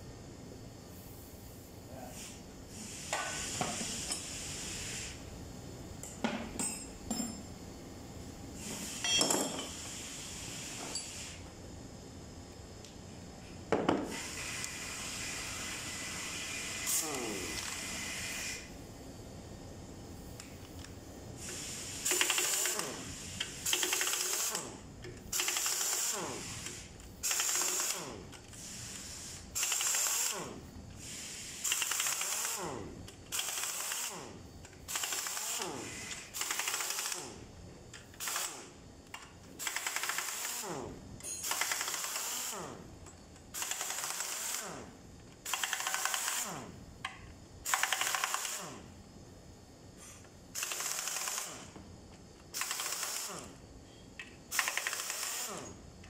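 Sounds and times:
pneumatic impact wrench bursts: 2.1 - 5.2, 8.6 - 11.5, 13.8 - 18.7, 21.4 - 37.4, 38.0 - 42.9, 43.5 - 46.8, 47.6 - 49.0, 50.0 - 51.8, 52.5 - 53.6, 54.5 - 55.8.

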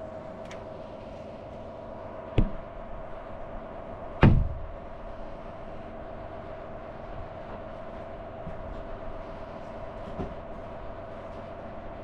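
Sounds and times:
steady hum: 0.0 - 12.0
sharp knocks: 2.4 - 2.7.

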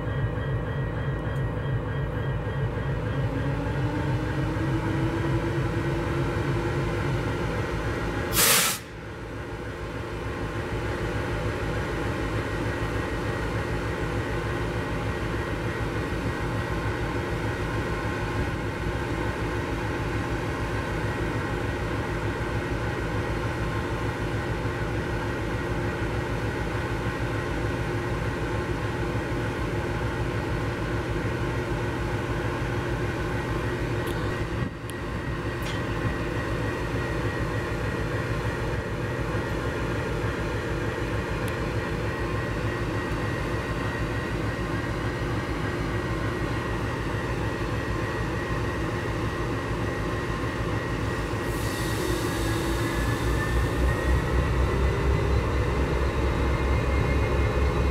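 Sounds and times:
loud hissing burst: 8.4 - 8.9
engine humming: 53.7 - 57.9.

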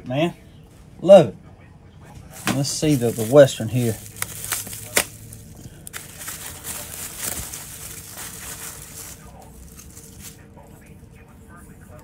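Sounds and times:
packaging rustling: 2.3 - 10.5.

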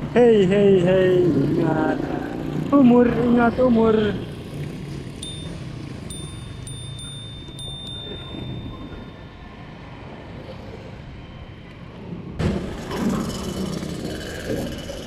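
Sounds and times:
traffic rumble: 0.0 - 15.0
thin high steady tone: 5.2 - 10.0.

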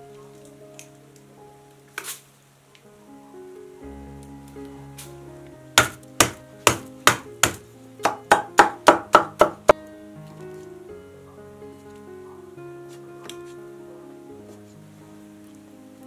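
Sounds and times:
background music: 0.0 - 16.0
cleaver chopping on wooden board: 5.8 - 9.6.

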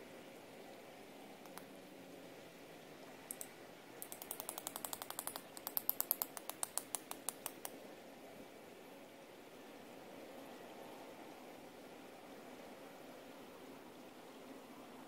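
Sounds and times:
rapid sharp clicks: 3.3 - 7.8.

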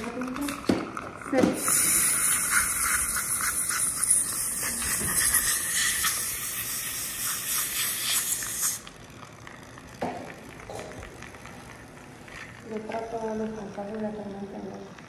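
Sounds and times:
dental drill and suction hissing: 1.3 - 8.9.

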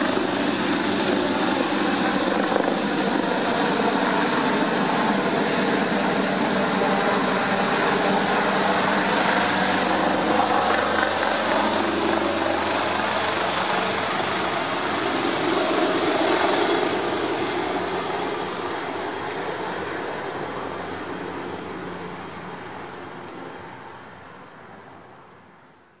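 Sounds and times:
helicopter rotor and turbine: 0.0 - 25.7.

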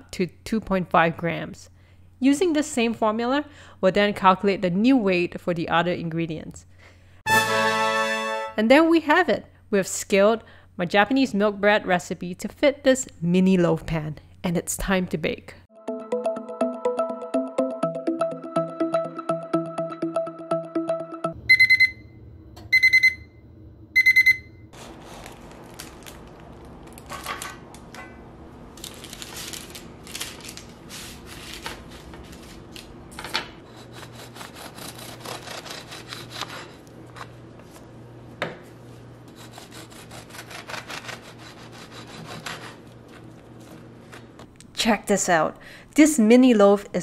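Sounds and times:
oven timer beeps: 21.4 - 24.7
parchment paper crinkling: 24.8 - 27.6, 28.8 - 32.9
bread knife sawing loaf: 33.6 - 36.8, 39.3 - 43.2.

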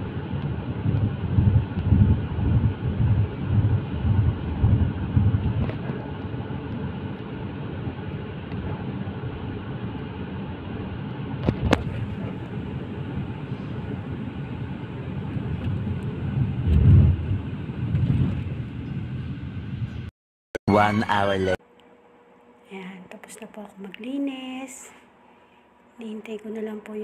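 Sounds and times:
car cabin road rumble: 0.0 - 20.1.

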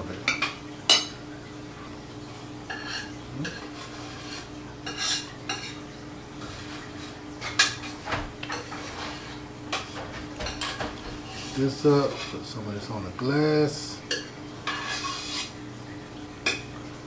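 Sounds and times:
metal utensil scraping ceramic plate: 14.6 - 15.6.

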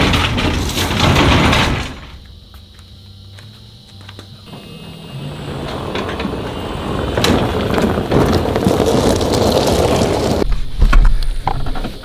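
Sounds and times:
tyres crunching on gravel: 0.0 - 10.7
golf cart driving past: 4.5 - 10.4.

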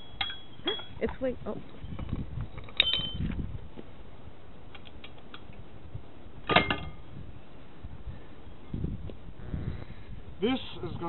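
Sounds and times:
metal clinks and knocks: 2.6 - 3.2.

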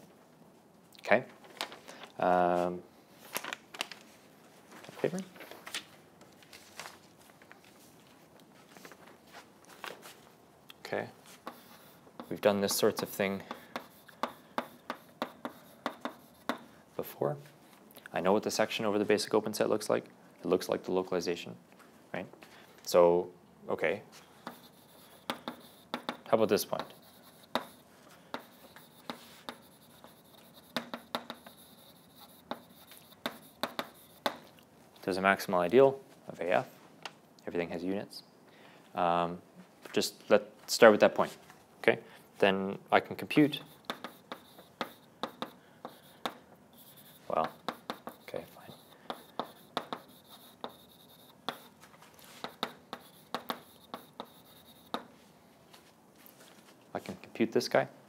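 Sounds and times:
chalk tapping and scraping on blackboard: 11.2 - 16.7, 24.4 - 34.5, 43.4 - 55.2.

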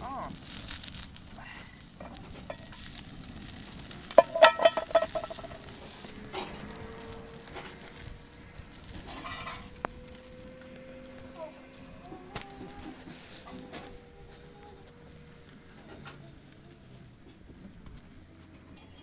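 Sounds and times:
food sizzling in a pan: 0.0 - 13.8
utensil clinking against pan: 4.1 - 5.6.

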